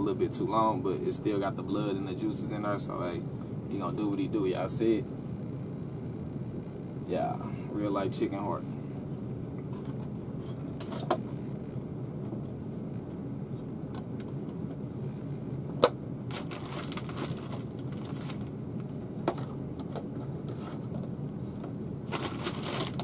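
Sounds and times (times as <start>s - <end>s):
steady low hum: 0.0s - 23.0s
plastic rustle: 16.3s - 18.5s, 22.1s - 23.0s.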